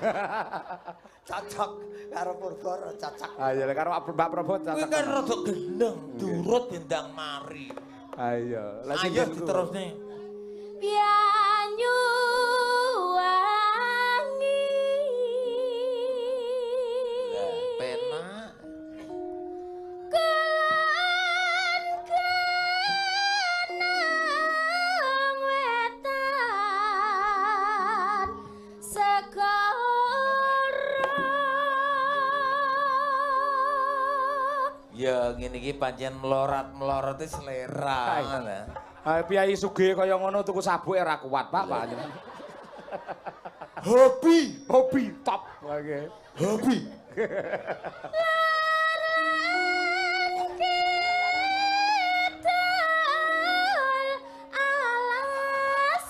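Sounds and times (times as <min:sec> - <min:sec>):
singer breathing: 0:01.0 - 0:01.3, 0:01.9 - 0:02.1, 0:10.1 - 0:10.8, 0:54.2 - 0:54.5
woman singing into a microphone: 0:10.8 - 0:19.2, 0:20.0 - 0:34.9, 0:48.1 - 0:56.0.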